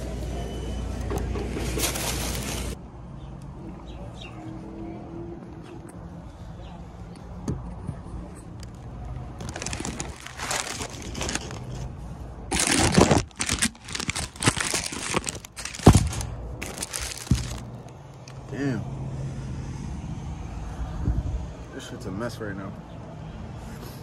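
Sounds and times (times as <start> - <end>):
paper wrapper crinkling: 1.6 - 2.8, 9.4 - 11.9, 12.5 - 18.4.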